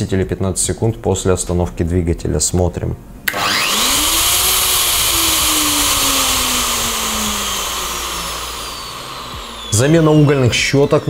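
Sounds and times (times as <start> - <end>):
router motor whining: 3.3 - 11.0.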